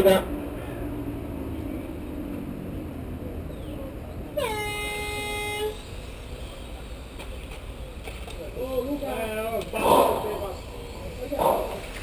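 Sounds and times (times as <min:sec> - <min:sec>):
race start horn: 0:04.4 - 0:05.8.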